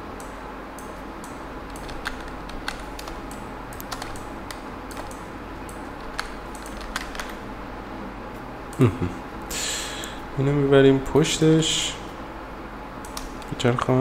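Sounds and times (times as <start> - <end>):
steady low hum: 0.0 - 14.0
keyboard and mouse clicks: 0.8 - 7.4, 13.0 - 13.5.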